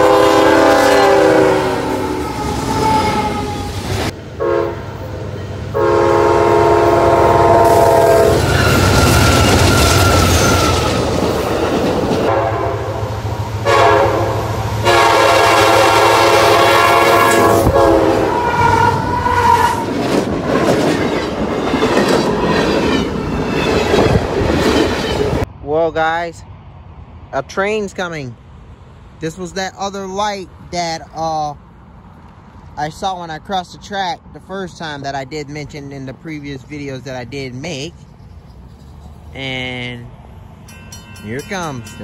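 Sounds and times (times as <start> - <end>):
locomotive air horn: 0.0 - 3.7, 4.4 - 4.9, 5.7 - 10.9, 12.3 - 19.9
freight cars rumbling past: 0.0 - 42.0
wheels clacking over rail joints: 19.8 - 25.4.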